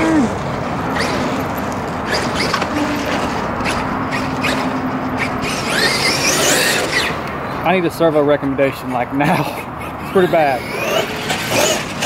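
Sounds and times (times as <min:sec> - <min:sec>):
electric motor high whine: 0:00.0 - 0:07.3.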